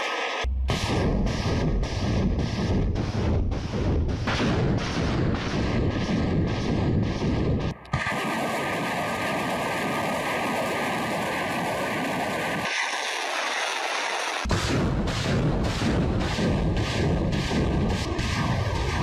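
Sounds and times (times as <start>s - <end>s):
rocket launch blasts: 0.7s - 19.0s
heavy roar of rockets: 4.6s - 19.0s.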